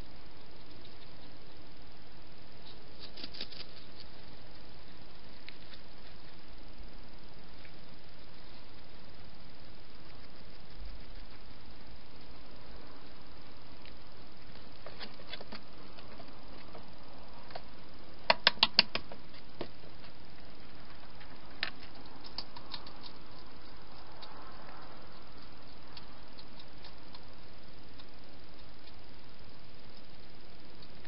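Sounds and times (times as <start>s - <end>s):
steady hiss: 0.0s - 31.0s
hedgehogs clicking and tapping: 17.5s - 20.2s, 21.6s - 27.3s.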